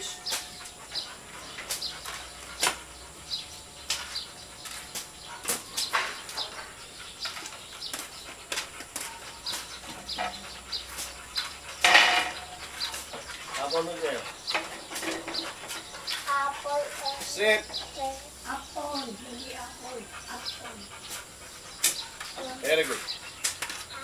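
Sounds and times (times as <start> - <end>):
bird chirps: 0.0 - 24.0.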